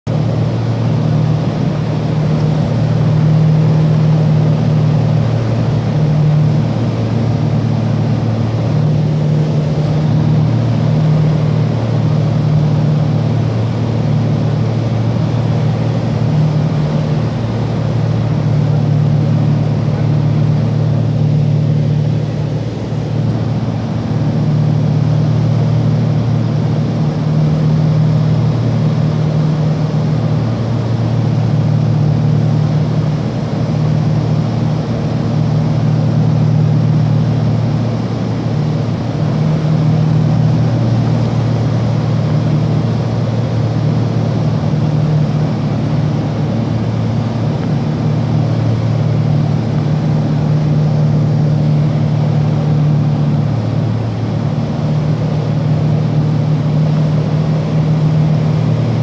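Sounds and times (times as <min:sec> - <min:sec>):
aircraft engine drone: 0:00.0 - 0:59.0
rush of noise: 0:00.1 - 0:59.0.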